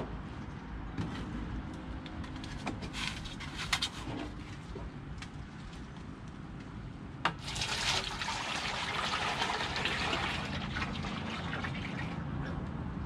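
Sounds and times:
liquid running: 7.4s - 12.2s.

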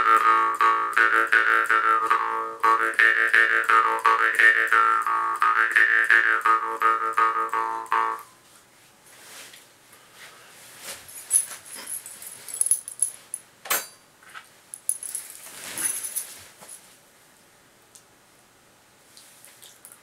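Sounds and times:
rustling and handling noises: 8.4s - 13.5s, 14.2s - 17.1s
light jingling: 11.1s - 13.5s, 14.7s - 16.9s.

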